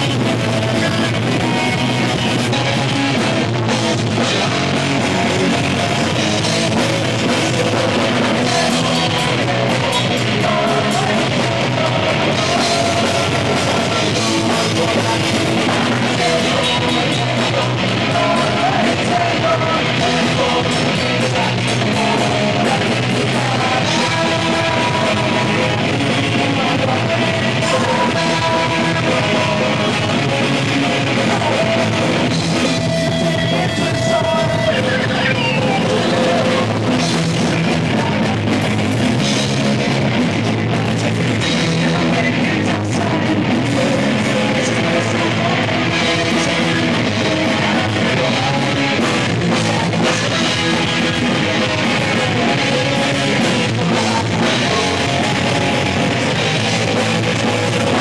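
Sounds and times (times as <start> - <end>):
man singing: 0.0 - 58.0
punk rock band playing: 0.0 - 58.0.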